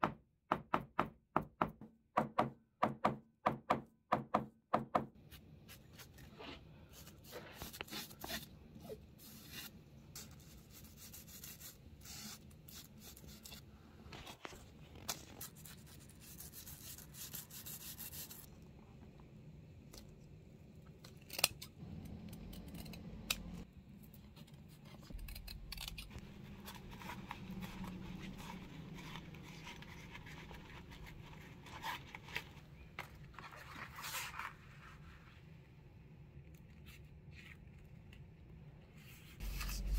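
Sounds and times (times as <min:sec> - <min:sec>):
fabric rubbing and rustling: 0:26.1 - 0:35.5
bristle brush scrubbing: 0:26.2 - 0:32.6.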